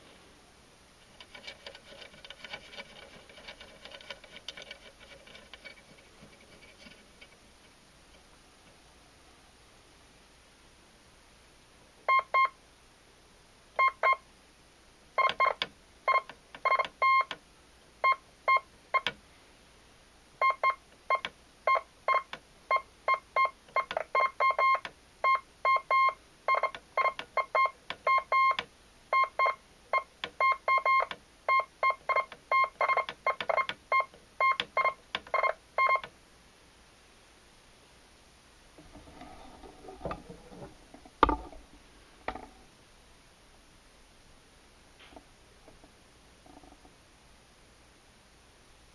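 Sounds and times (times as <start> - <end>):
morse code beeps: 15.2 - 17.3, 20.4 - 28.6, 29.2 - 36.0.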